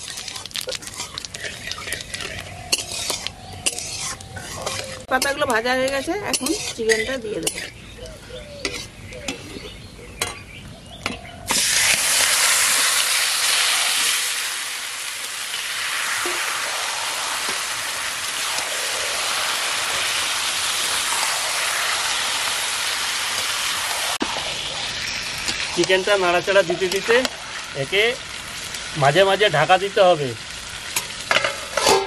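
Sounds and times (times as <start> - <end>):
chicken sizzling in hot oil: 0.0 - 7.8, 11.4 - 32.0
bowl and spatula clinking on pan: 31.3 - 32.0.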